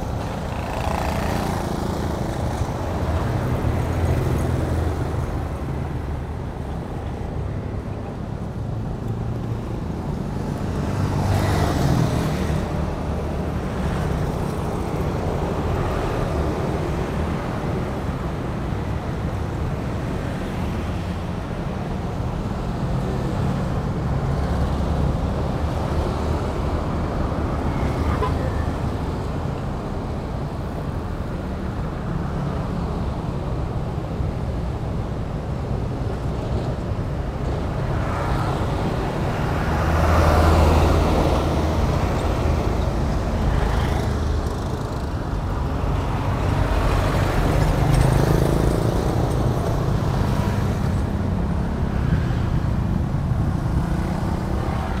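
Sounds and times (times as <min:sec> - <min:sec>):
motorbikes and cars passing: 0:00.0 - 0:55.0.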